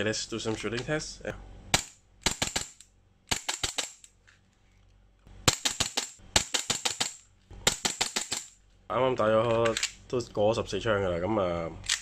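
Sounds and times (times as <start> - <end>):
airsoft pistol shots: 1.7 - 4.0, 5.4 - 8.5.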